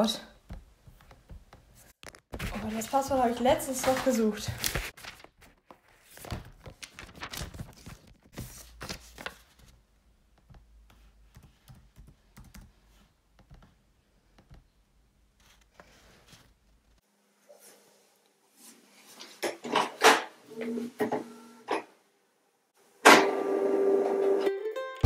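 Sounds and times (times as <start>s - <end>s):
laptop keyboard typing: 11.2s - 12.8s.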